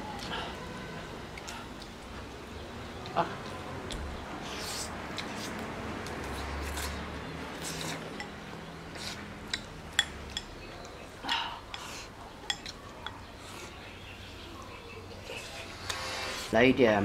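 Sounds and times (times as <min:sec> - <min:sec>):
slurping and chewing: 0:04.4 - 0:09.7, 0:15.1 - 0:16.5
chopsticks clinking on bowls: 0:09.0 - 0:13.3.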